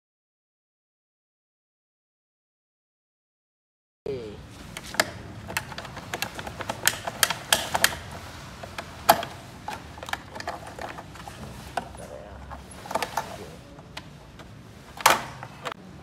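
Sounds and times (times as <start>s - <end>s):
plastic clips clicking and snapping: 4.7s - 15.8s.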